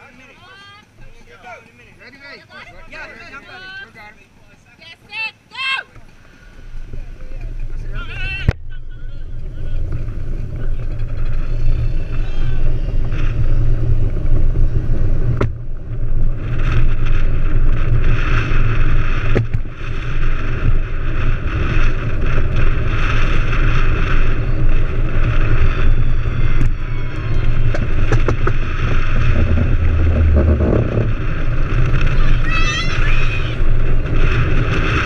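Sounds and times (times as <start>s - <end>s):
wheels rumbling on tarmac: 0.0s - 35.0s
wind on microphone: 6.6s - 35.0s
cart rattling: 20.6s - 35.0s.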